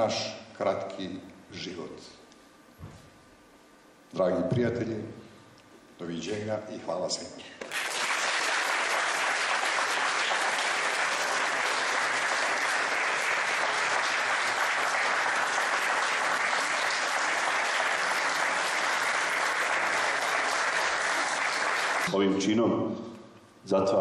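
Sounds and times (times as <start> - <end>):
crowd applauding: 7.6 - 22.1.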